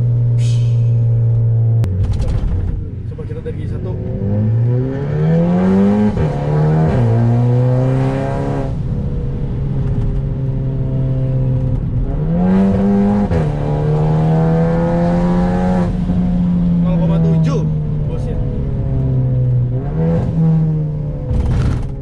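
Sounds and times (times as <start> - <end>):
car engine accelerating: 0.0 - 22.0.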